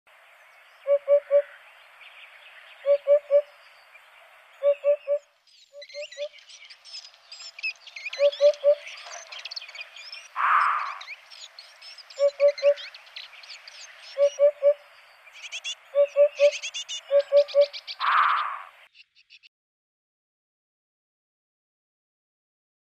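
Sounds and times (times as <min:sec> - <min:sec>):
songbirds chirping: 0:00.1 - 0:19.5
hoopoe hooting: 0:08.2 - 0:08.8, 0:12.2 - 0:12.8, 0:14.2 - 0:14.8, 0:16.0 - 0:17.7.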